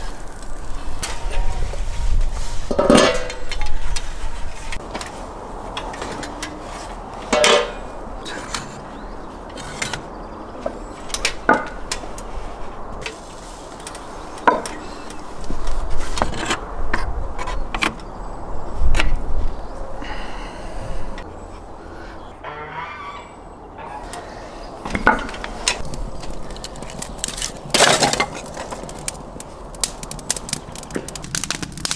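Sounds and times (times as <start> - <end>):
metal clanking against brick: 7.3 - 7.8.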